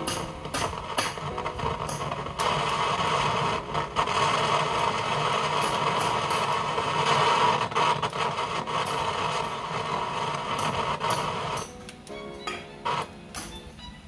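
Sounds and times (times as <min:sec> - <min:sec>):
electric tool hissing: 0:00.0 - 0:11.7.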